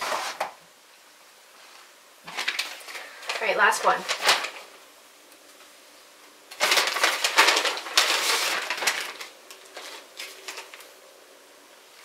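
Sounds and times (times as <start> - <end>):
paper bag crinkling: 2.2 - 4.8, 6.5 - 11.0.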